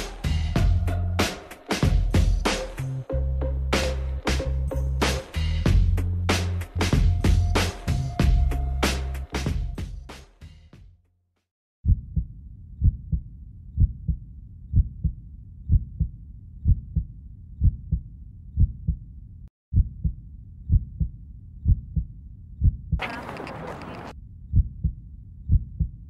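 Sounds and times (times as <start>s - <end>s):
heartbeat double thumps: 11.8s - 19.1s, 19.7s - 23.0s, 24.5s - 26.0s.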